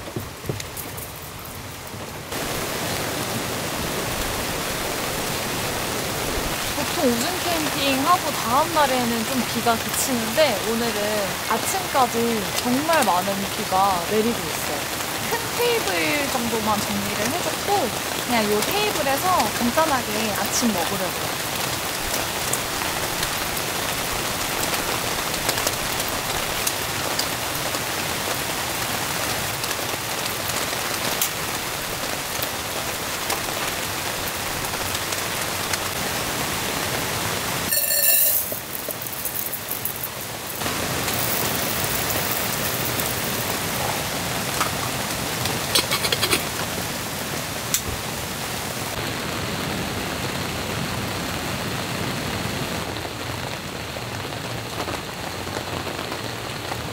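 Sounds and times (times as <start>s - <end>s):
heavy rain on canvas tarp: 0.0s - 56.9s
loud water drips: 37.6s - 46.0s.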